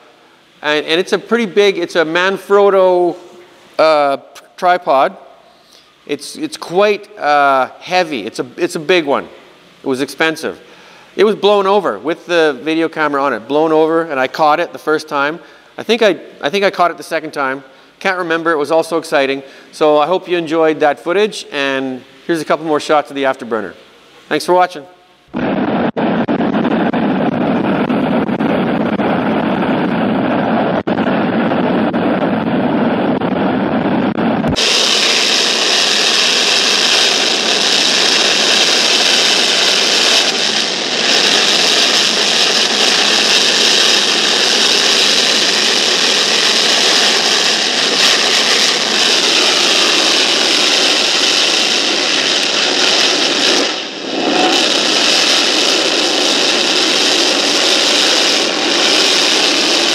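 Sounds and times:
jet engine roaring in afterburner: 0:25.3 - 0:59.9.

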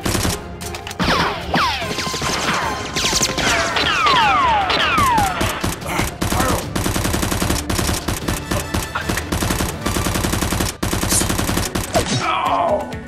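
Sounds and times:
rapid automatic gunfire: 0:00.0 - 0:00.4, 0:05.0 - 0:12.1.

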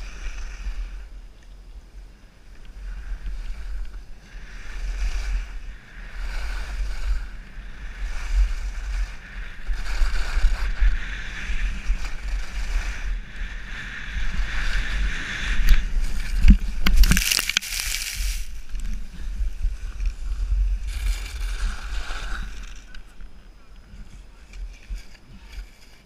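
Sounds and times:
wind on microphone: 0:00.0 - 0:26.0
skis scraping on snow: 0:02.7 - 0:26.0
skier crashing in snow: 0:04.5 - 0:22.9.

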